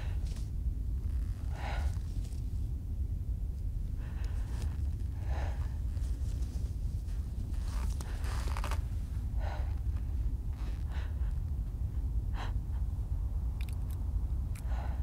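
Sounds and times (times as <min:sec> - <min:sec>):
steady low rumble: 0:00.0 - 0:15.0
woman breathing hard: 0:01.2 - 0:02.1, 0:03.9 - 0:06.4, 0:07.5 - 0:13.8, 0:14.5 - 0:15.0.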